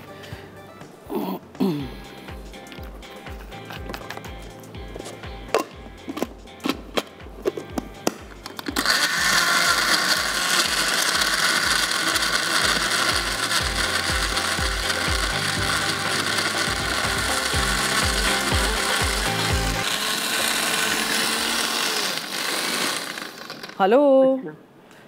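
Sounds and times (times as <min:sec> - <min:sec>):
blender blending ice: 0:08.6 - 0:23.9.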